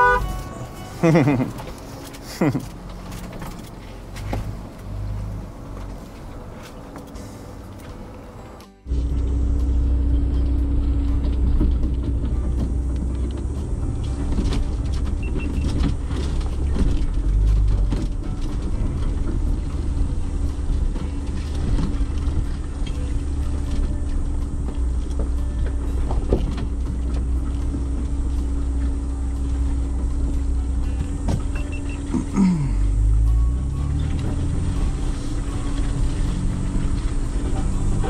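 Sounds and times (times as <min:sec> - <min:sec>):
vehicle engine and tyres rumbling: 0:00.0 - 0:38.0
suspension knocks and rattles: 0:01.2 - 0:07.1, 0:10.3 - 0:32.2.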